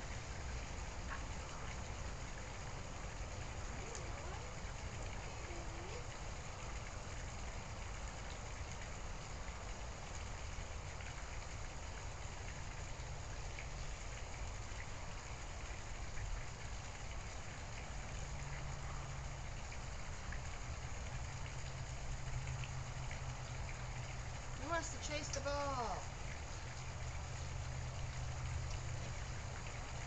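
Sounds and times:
steady background hiss: 0.0s - 30.0s
faint ticks: 28.6s - 28.9s.

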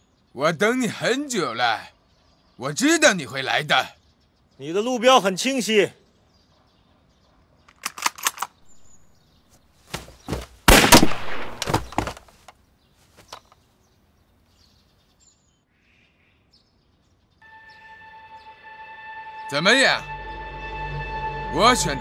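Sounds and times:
sharp clicks: 7.6s - 8.6s
rifle shot with echo: 10.7s - 11.7s.

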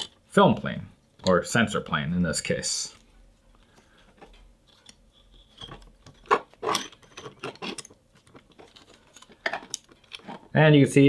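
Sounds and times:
plastic parts clicking and knocking: 4.1s - 10.5s.

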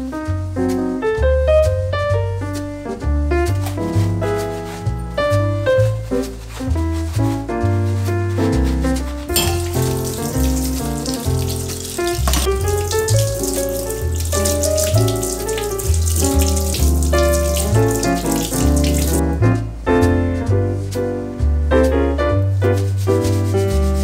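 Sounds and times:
instrumental background music: 0.0s - 24.0s
tap running water into sink: 9.3s - 19.2s.

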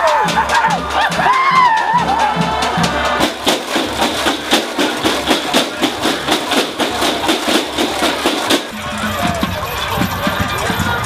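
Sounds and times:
drumline percussion beat: 0.0s - 11.0s.

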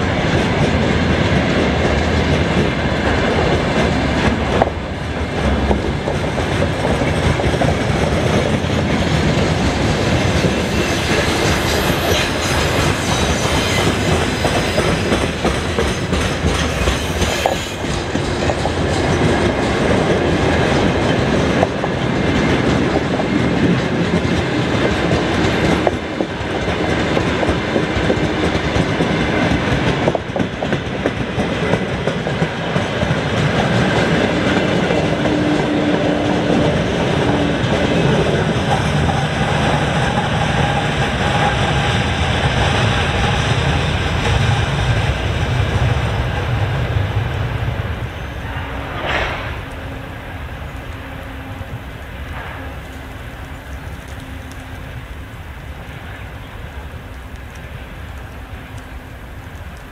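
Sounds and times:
wheels clacking over rail joints: 0.0s - 47.8s
train wheels rumbling on rail: 0.0s - 59.9s.

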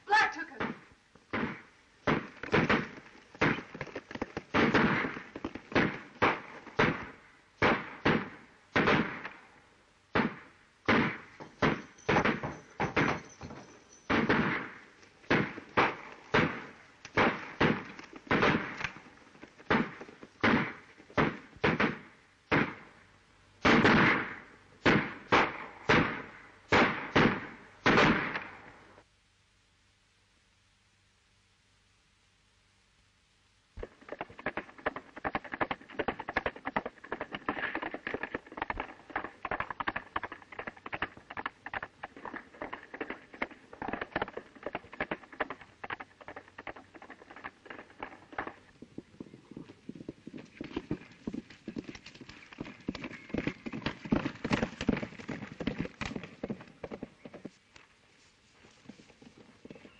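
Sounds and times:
pistol shots echoing: 4.5s - 9.4s, 14.1s - 18.9s.

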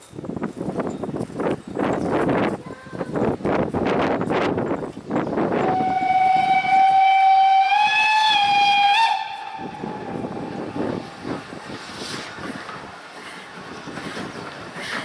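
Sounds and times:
locomotive exhaust beats: 3.4s - 15.0s
steam locomotive whistle: 5.6s - 11.2s.

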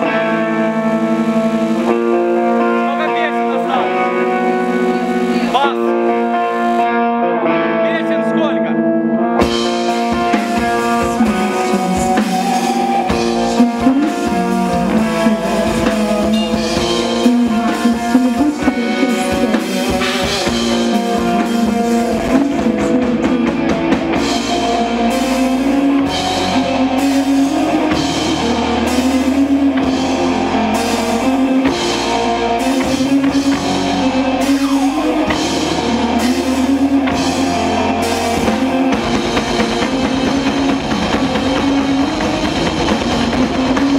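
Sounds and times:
bass guitar: 0.0s - 43.9s
electric guitars: 0.0s - 43.9s
drum kit beat: 9.4s - 43.9s.

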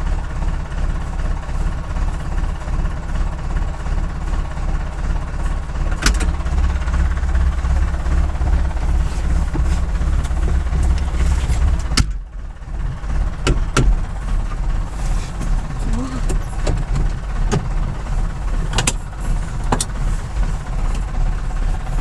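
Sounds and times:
tractor diesel engine idling: 0.0s - 22.0s
cab door shutting: 6.0s - 6.6s, 8.9s - 12.2s, 13.4s - 14.2s, 15.2s - 18.0s, 18.6s - 20.1s.

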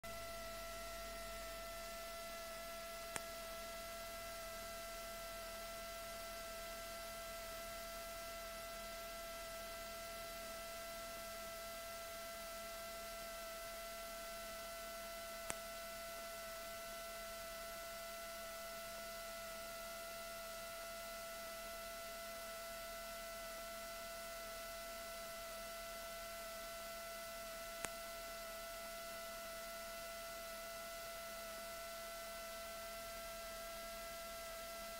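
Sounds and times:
electrical hum: 0.0s - 34.9s
thin high whine: 0.0s - 34.9s
faint clicks: 3.1s - 3.3s.

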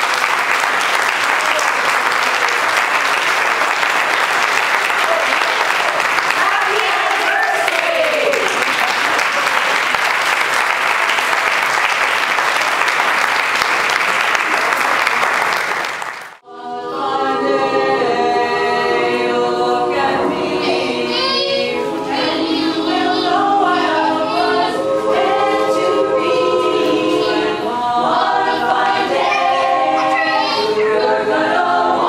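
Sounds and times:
women's a cappella chorus singing: 16.4s - 32.0s.

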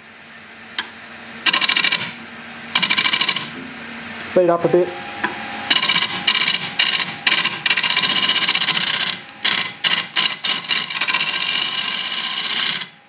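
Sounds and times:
lathe gouge cutting wood: 1.4s - 3.6s, 5.6s - 13.0s.

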